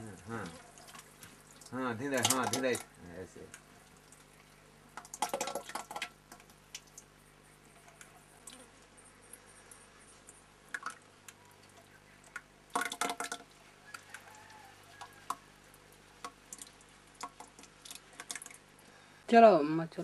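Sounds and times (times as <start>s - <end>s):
liquid dripping and splashing: 0.0s - 19.0s.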